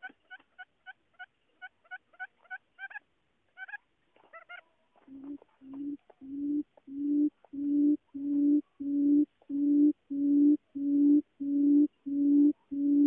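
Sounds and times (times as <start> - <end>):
bird low hooting call: 5.1 - 13.0.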